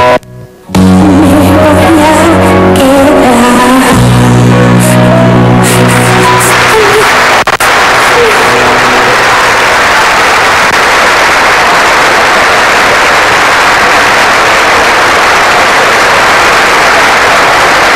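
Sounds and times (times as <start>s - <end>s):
audience applauding: 4.8s - 17.9s.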